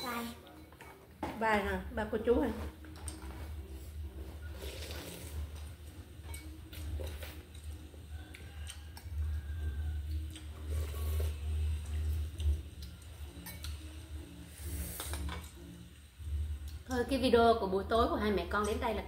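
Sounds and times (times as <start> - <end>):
slurping soup: 4.4 - 5.7, 10.3 - 12.0, 14.4 - 15.4
utensils clicking on ceramic bowl: 13.4 - 13.9.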